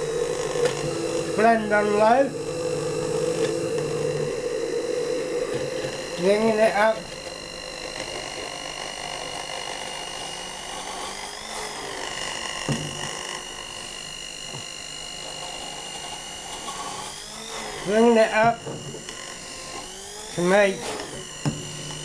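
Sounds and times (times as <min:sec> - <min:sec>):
stick blender motor whine: 0:00.0 - 0:22.0.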